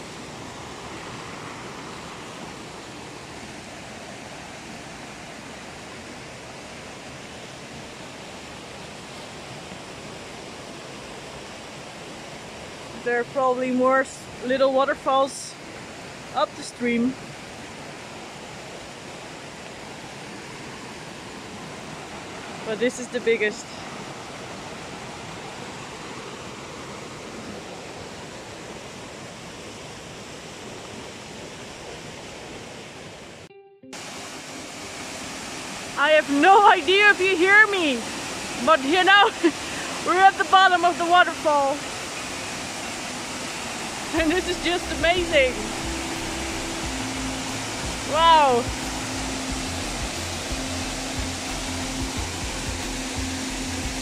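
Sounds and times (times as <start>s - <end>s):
river water rushing over rocks: 0.0s - 54.0s.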